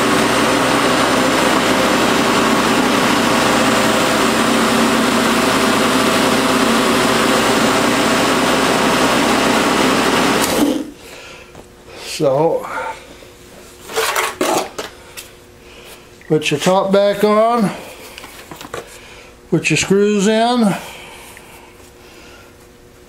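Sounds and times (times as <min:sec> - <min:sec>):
electric mower motor running: 0:00.0 - 0:10.9.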